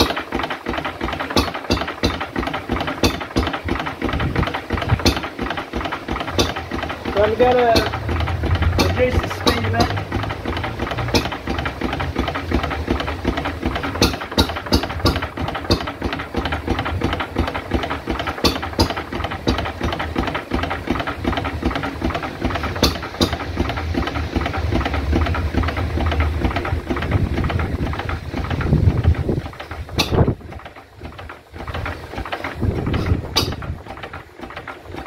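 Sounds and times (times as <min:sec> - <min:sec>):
stationary engine running: 0:00.0 - 0:35.0
sharp click: 0:30.0 - 0:30.3.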